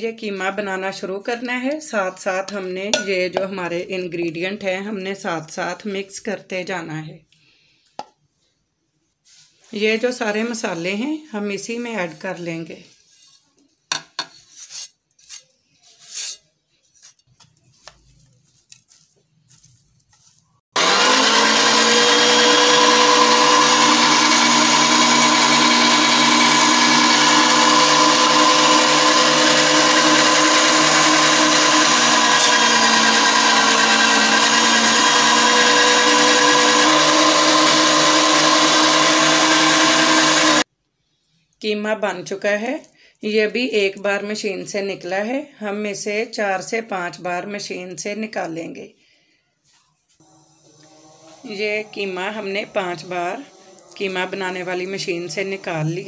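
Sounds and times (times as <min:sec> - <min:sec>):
light taps and scrapes: 0:12.9 - 0:20.5
electric meat grinder motor hum: 0:20.8 - 0:40.7, 0:50.2 - 0:56.0.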